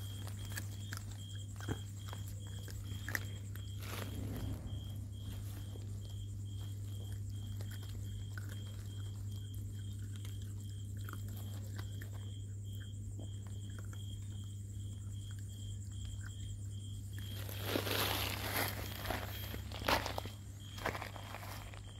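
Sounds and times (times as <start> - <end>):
puppies chewing: 0.0 - 4.3, 5.4 - 21.9
steady low hum: 0.0 - 21.9.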